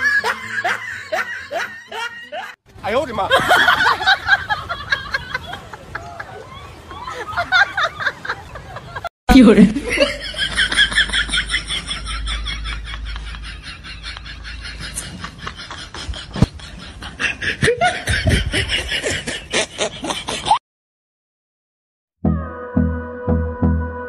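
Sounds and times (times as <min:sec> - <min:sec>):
person laughing hard: 0:00.0 - 0:02.6, 0:09.8 - 0:20.6.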